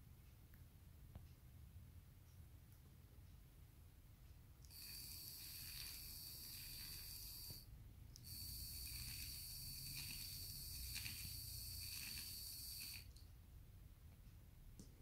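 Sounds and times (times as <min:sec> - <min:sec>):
small electric hoist motor whining: 0:04.7 - 0:13.1.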